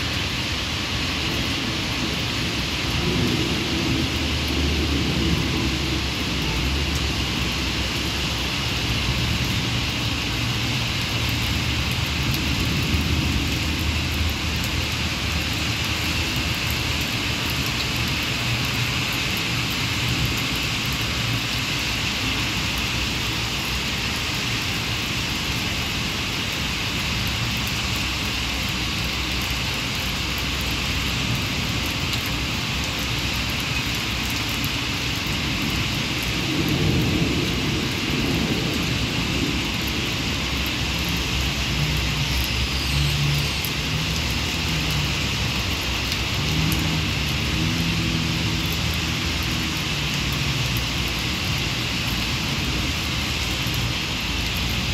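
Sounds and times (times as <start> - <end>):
heavy rain: 0.0 - 54.9
thunder rumble: 1.6 - 7.9, 35.5 - 42.1.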